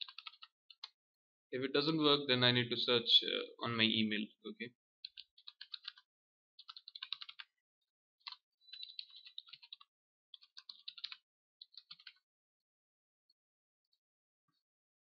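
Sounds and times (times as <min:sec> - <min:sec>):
keyboard typing: 0:00.0 - 0:01.0, 0:05.0 - 0:07.5, 0:08.2 - 0:12.2.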